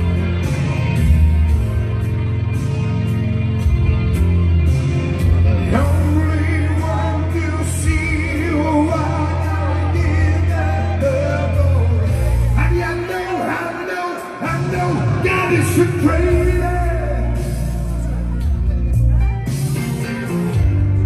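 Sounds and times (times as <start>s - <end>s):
amplified party music: 0.0s - 21.0s
man singing into microphone: 5.7s - 17.8s.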